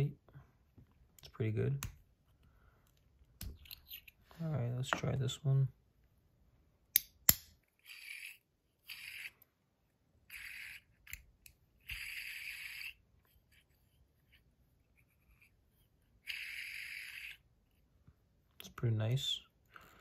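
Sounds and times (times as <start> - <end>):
fidget top whirring spin: 7.8 - 9.4, 10.2 - 13.8, 16.2 - 17.5.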